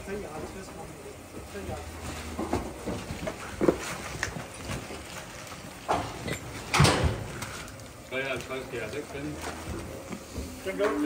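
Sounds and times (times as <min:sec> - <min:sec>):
hooves on concrete floor: 0:00.3 - 0:11.0
boots on concrete floor: 0:01.4 - 0:07.7.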